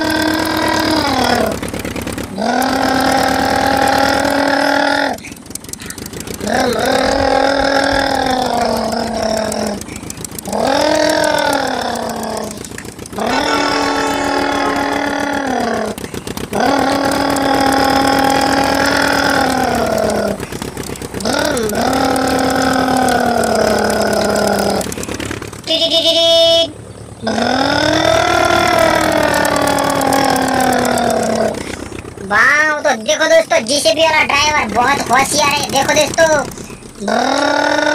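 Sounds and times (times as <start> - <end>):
person imitating engine vroom: 0.0 - 37.9
higher buzzy sound: 13.2 - 27.6
breaths: 31.6 - 32.0.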